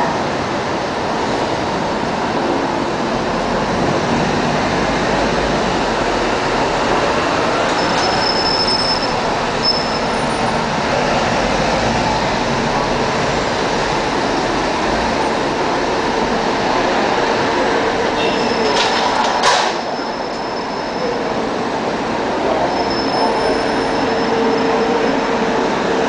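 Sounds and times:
traffic and vehicle noise: 0.0 - 26.0
short high squeal: 7.7 - 10.2.

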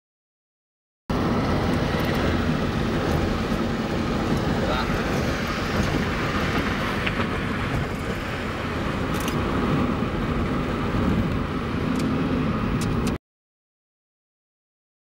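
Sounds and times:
car tyres and engine rumble: 1.1 - 13.2.

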